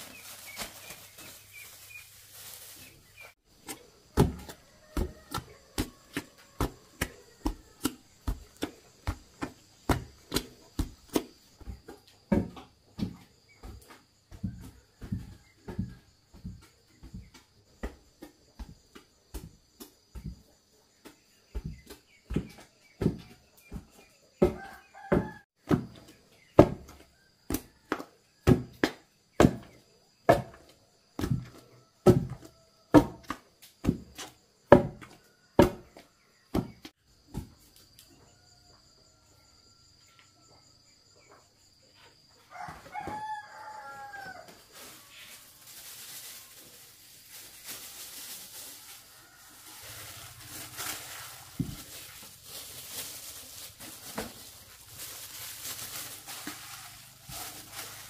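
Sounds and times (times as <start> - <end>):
soft rustling of dough: 0.0 - 25.6, 40.8 - 58.0
pestle pounding in wooden mortar: 3.7 - 11.8, 25.6 - 26.0
rooster crowing: 4.2 - 7.9, 24.5 - 25.5, 42.4 - 45.4, 48.6 - 51.3.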